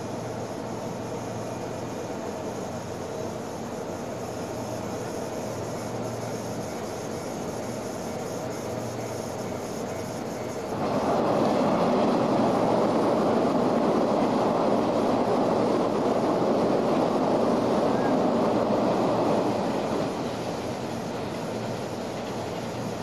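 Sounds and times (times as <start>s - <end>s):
electric hum from standing train: 0.0s - 23.0s
train wheel and rail noise: 0.0s - 23.0s.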